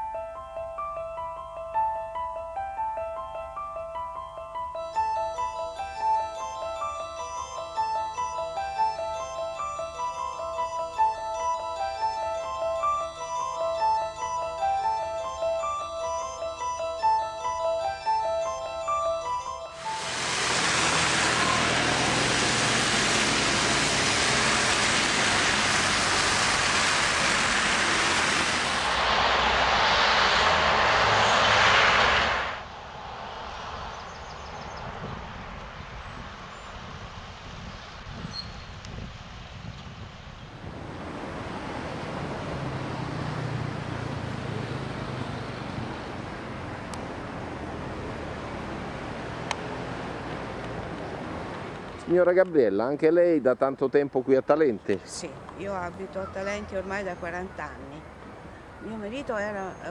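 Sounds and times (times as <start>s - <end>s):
road traffic: 0.0s - 59.9s
low engine hum: 19.8s - 36.5s, 40.6s - 52.1s
traffic on wet road: 19.8s - 37.5s, 40.7s - 52.6s
wind on microphone: 34.1s - 42.8s.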